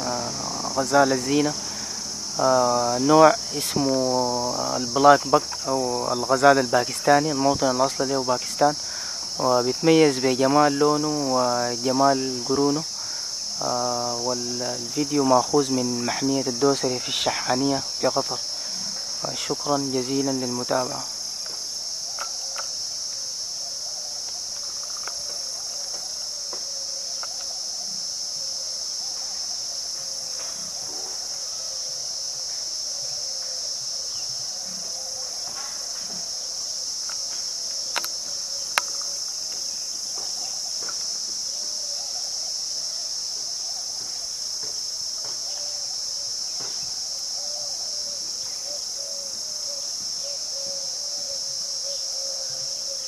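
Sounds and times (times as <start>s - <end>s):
insects chirring: 0.0s - 53.0s
sharp clicks: 37.9s - 39.1s.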